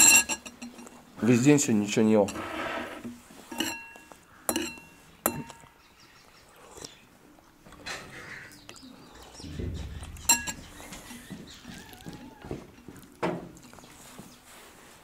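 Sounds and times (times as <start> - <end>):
cutlery clinking against dish: 0.0 - 1.0, 3.5 - 5.8.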